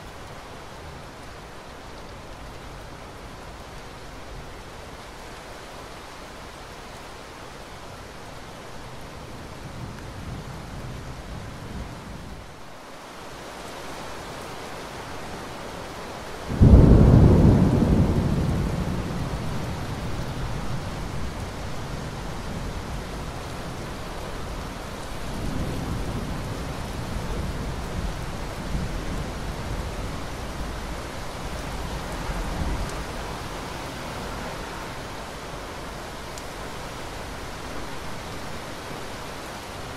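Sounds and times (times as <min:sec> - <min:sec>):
steady rain hiss: 0:00.0 - 0:39.9
thunder rumbling: 0:16.5 - 0:21.4.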